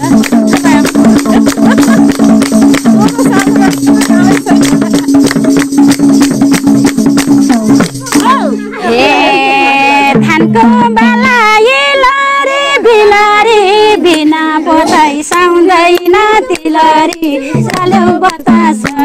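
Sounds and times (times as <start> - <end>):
women singing folk song: 0.0 - 5.2, 8.2 - 19.0
percussion beat: 0.0 - 12.3, 13.3 - 19.0.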